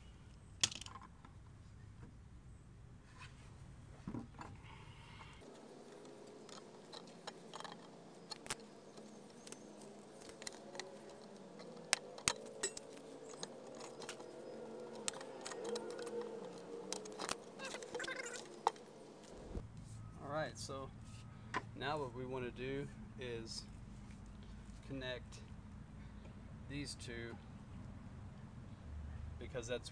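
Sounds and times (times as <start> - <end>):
wire clicking and scraping: 4.4 - 19.9.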